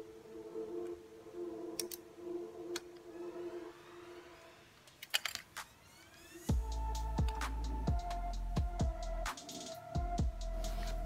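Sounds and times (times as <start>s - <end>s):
faint steady hum: 0.0s - 5.1s
screwdriver clicks and scrapes: 4.9s - 5.6s.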